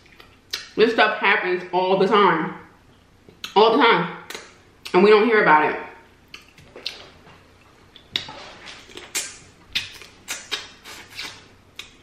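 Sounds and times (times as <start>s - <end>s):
mouth smacking while eating: 6.3s - 12.0s.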